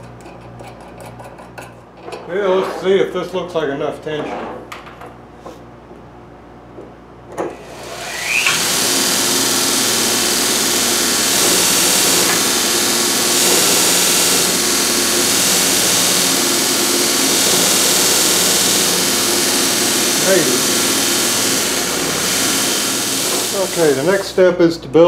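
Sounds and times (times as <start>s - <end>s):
belt grinder running: 7.6s - 24.4s.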